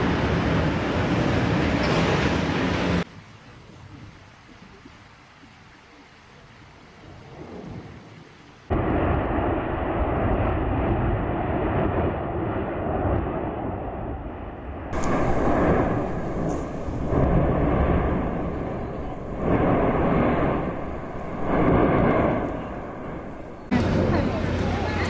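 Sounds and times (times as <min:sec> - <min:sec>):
volcanic vent roars: 0:00.0 - 0:03.1, 0:08.7 - 0:25.0
volcano low rumble: 0:00.0 - 0:05.0, 0:05.9 - 0:25.0.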